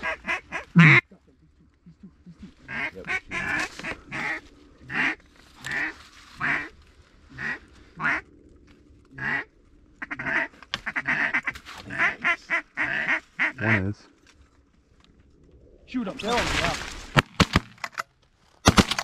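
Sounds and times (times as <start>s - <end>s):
duck quacking: 0.0s - 1.2s, 2.6s - 6.7s, 7.4s - 8.2s, 9.2s - 13.8s.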